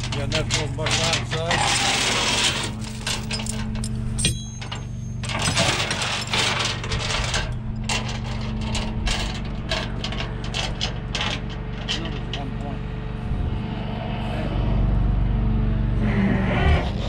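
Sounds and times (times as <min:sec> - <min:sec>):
metal chain clinking and rattling: 0:00.0 - 0:12.4
truck engine idling: 0:00.0 - 0:13.7.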